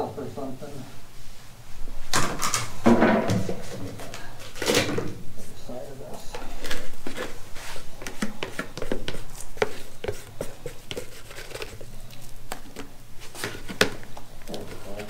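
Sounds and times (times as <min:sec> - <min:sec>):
stir stick scraping plastic cup: 0:06.4 - 0:15.0.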